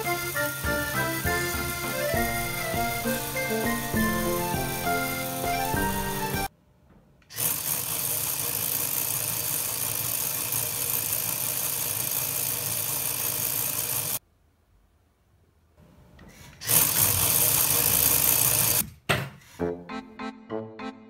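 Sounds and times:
music: 0.0s - 6.5s, 19.6s - 21.0s
toy freewheel mechanism whirring: 0.0s - 6.5s, 7.3s - 14.2s, 16.6s - 18.8s.

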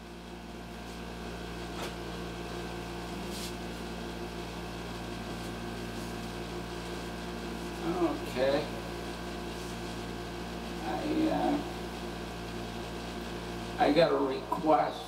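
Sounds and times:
electrical hum and buzz: 0.0s - 15.0s.

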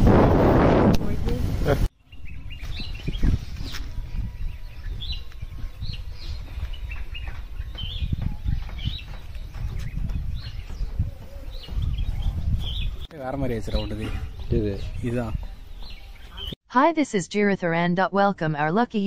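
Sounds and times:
wind buffeting microphone: 0.0s - 16.6s
small birds chirping: 1.9s - 16.6s.

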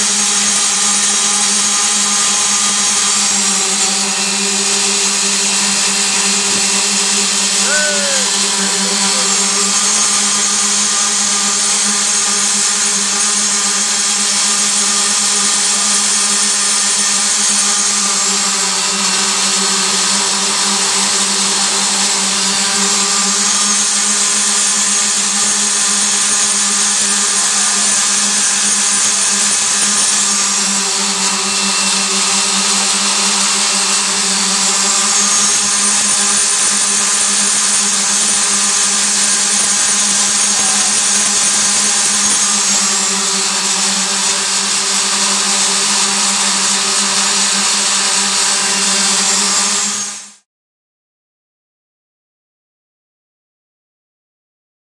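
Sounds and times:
concrete vibrator motors humming: 0.1s - 13.3s.

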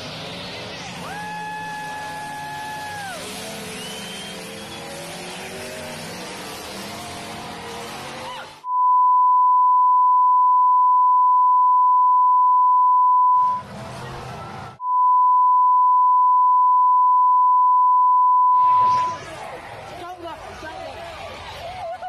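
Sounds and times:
crowd noise: 0.0s - 8.7s, 13.4s - 14.8s, 18.6s - 22.0s
censor bleep: 8.7s - 13.6s, 14.8s - 19.2s.

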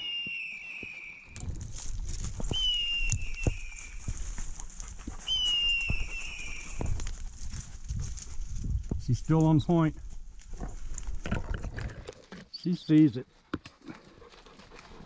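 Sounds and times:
footsteps crunching dry leaves: 1.4s - 10.9s.

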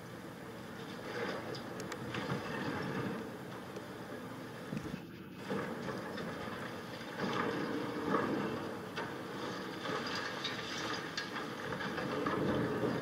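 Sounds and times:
concrete crunching and debris falling: 5.4s - 13.0s.

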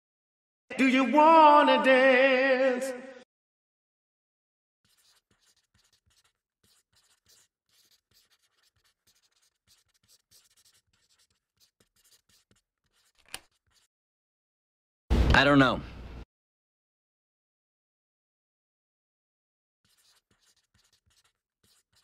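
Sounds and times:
pencil writing on paper: 4.8s - 13.9s, 19.8s - 22.0s.

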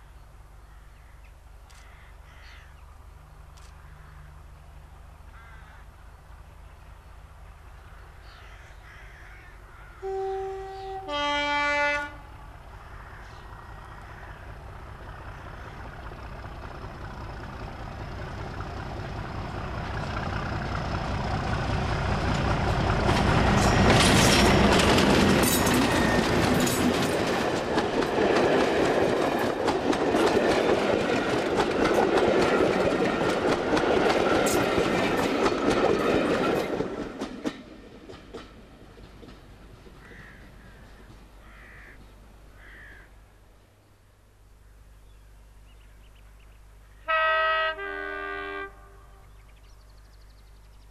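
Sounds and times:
diesel locomotive engine: 9.6s - 42.6s, 46.6s - 50.9s
wheels clicking over rail joints: 14.7s - 41.4s.

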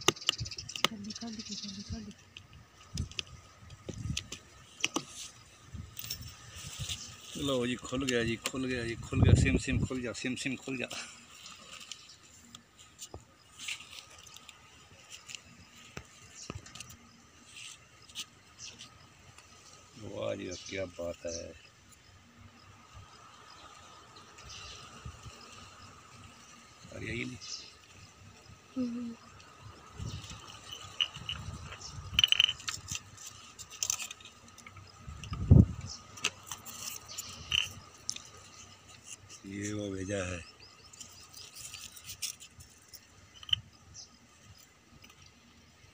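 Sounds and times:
handling clicks and rattles: 30.3s - 35.5s.

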